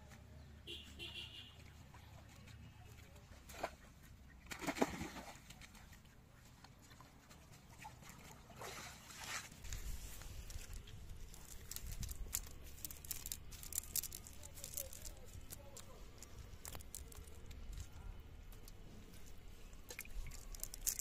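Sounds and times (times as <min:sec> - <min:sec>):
net splashing in water: 0:03.4 - 0:05.9, 0:07.7 - 0:09.8
clicks and rattles of net weights: 0:10.4 - 0:17.9, 0:19.9 - 0:21.0.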